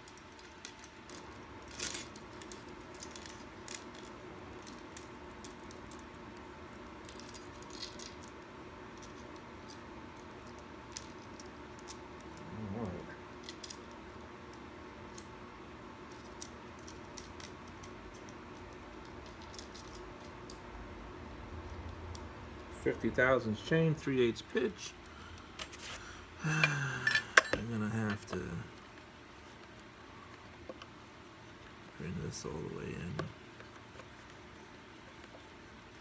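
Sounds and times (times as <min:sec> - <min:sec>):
faint room hum: 0:00.0 - 0:36.0
person humming: 0:26.4 - 0:27.4.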